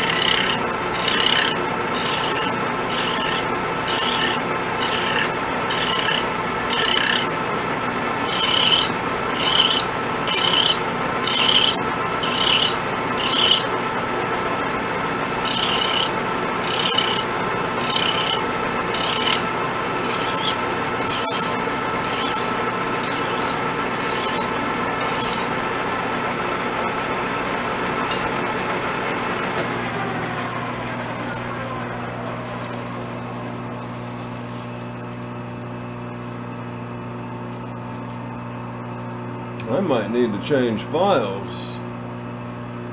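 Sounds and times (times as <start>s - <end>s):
file rasping on steel: 0.0s - 7.4s, 8.2s - 13.7s, 15.4s - 25.5s
lathe running hum: 0.0s - 42.9s.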